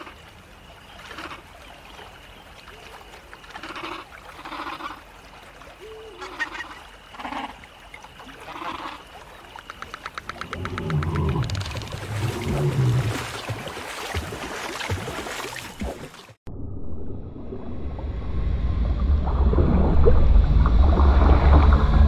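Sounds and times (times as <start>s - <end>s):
forest ambience: 0.0s - 16.4s.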